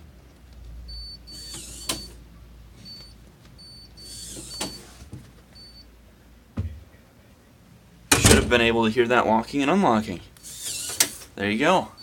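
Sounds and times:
card reader beeps: 0.9s - 2.2s, 2.9s - 5.0s, 5.6s - 5.9s
servo whirring: 1.3s - 2.2s, 4.0s - 4.8s, 10.4s - 11.3s
lock clunk: 8.1s - 8.8s.

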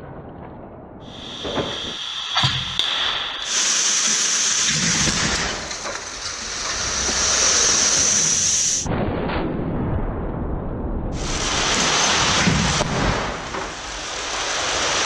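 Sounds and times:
sharp cracks of crash: 1.0s - 9.7s, 11.2s - 15.0s
loud hissing rush: 1.1s - 8.9s, 11.2s - 15.0s.

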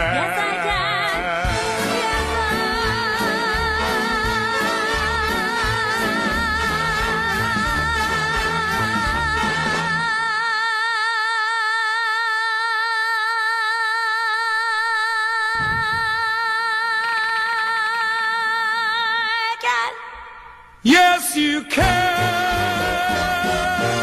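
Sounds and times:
show-tune band: 1.3s - 10.0s, 21.8s - 24.0s.

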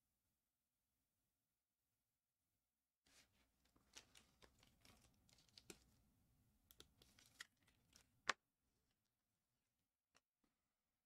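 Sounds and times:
trading cards rustling and clicking: 3.2s - 6.0s, 6.7s - 8.2s.

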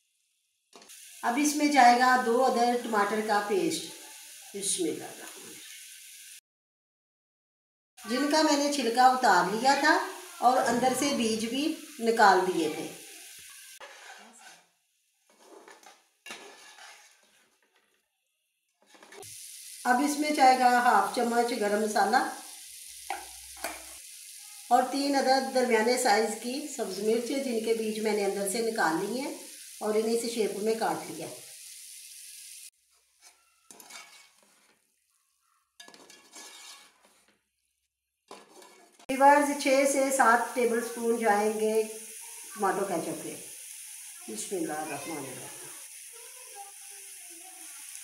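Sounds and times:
light sizzle: 0.0s - 6.4s, 8.0s - 48.0s
metal spatula scraping a pot: 13.8s - 14.7s, 15.3s - 18.0s, 18.8s - 19.2s, 32.9s - 34.8s, 35.8s - 37.4s, 38.3s - 39.1s.

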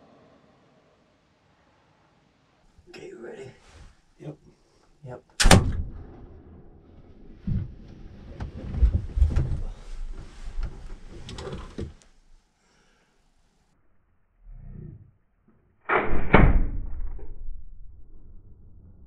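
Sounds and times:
gunshot echo: 5.4s - 6.8s, 15.9s - 17.9s
rustling: 7.2s - 12.4s.

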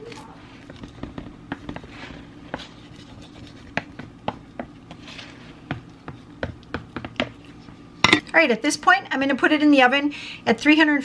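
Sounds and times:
spatula scraping meat mixture: 0.4s - 7.8s.

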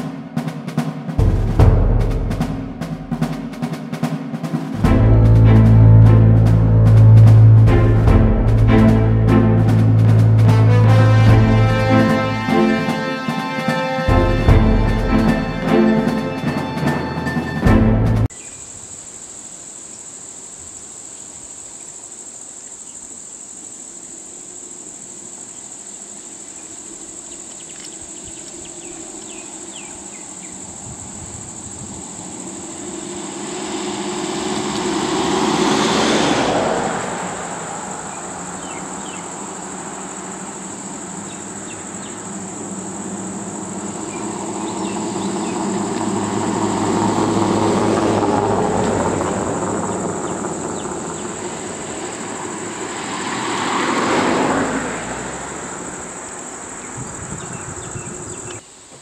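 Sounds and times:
vehicles driving by: 4.6s - 18.3s, 27.8s - 58.6s
high-pitched insect drone: 18.3s - 58.6s.

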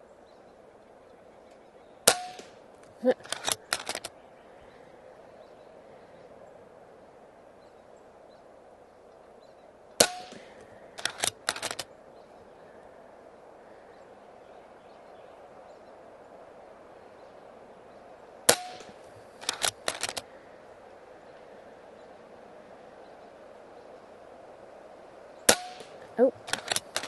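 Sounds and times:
air rifle shot crack: 2.0s - 2.6s, 10.0s - 11.9s, 18.5s - 20.3s, 25.5s - 27.0s
quick run of clicks: 3.2s - 4.1s, 10.6s - 11.9s, 18.7s - 20.3s, 25.7s - 27.0s.

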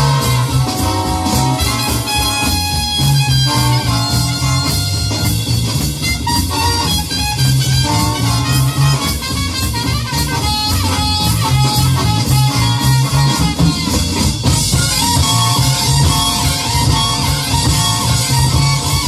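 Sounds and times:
electronic drum kit: 0.0s - 19.0s
guitar: 0.0s - 19.0s
walking bass line: 0.0s - 19.0s.

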